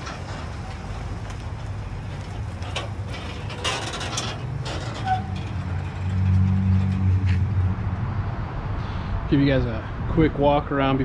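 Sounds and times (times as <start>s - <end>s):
clicks and rattles: 0.0s - 7.4s
vehicle engine humming: 0.0s - 10.4s.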